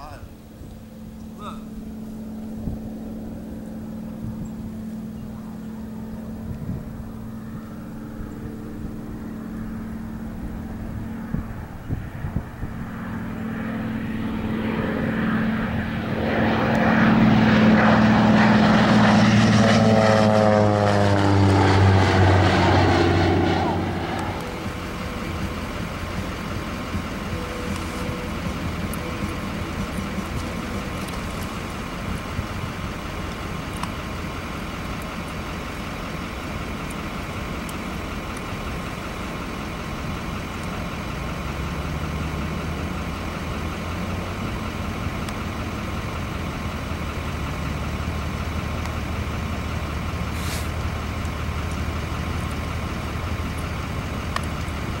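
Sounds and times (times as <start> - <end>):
propeller plane engine rumble: 0.0 - 55.0.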